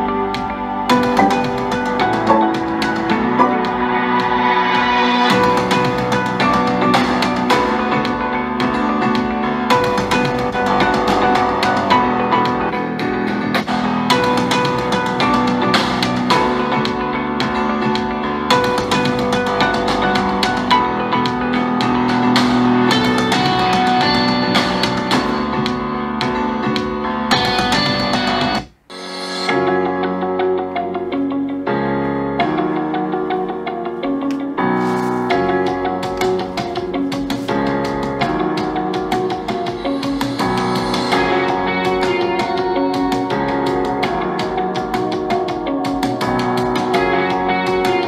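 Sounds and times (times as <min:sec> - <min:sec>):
music with steady beat: 0:00.0 - 0:48.0
instrumental music with plucked guitar: 0:00.9 - 0:04.0.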